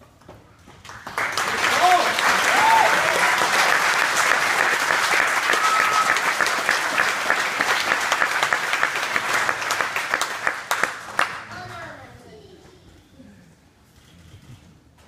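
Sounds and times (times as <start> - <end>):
audience applauding: 0.8 - 11.6.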